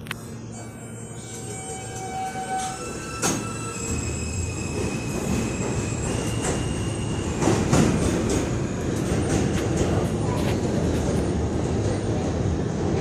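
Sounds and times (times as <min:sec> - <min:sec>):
high wheel squeal: 0:00.6 - 0:07.4
rail joint clicks: 0:01.2 - 0:11.3
train wheels rumbling on rails: 0:01.2 - 0:13.0.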